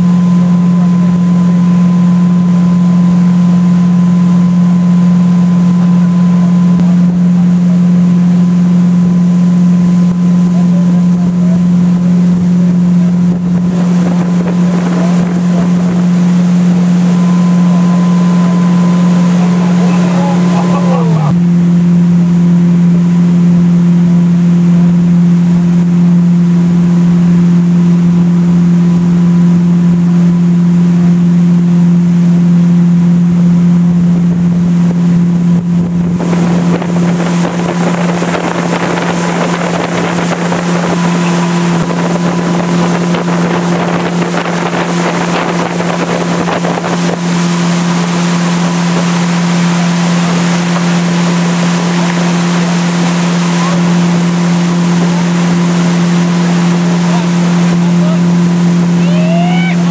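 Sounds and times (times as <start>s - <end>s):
motorboat engine running: 0.0s - 59.9s
rush of boat wake: 0.0s - 59.9s
wind on microphone: 11.1s - 21.4s, 34.1s - 59.9s.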